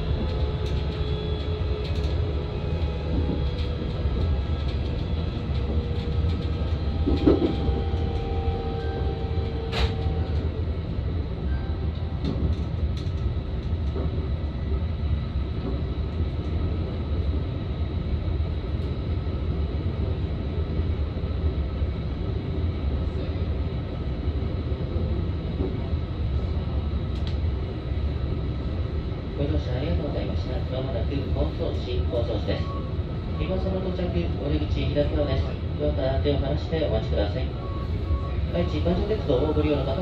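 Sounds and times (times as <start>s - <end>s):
train wheels rumbling on rails: 0.0s - 40.0s
click: 9.7s - 10.4s, 27.1s - 27.4s.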